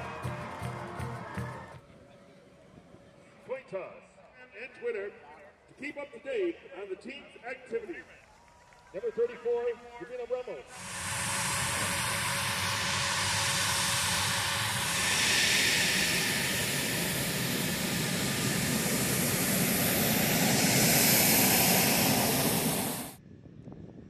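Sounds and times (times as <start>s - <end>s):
jet engines running: 9.0s - 23.2s.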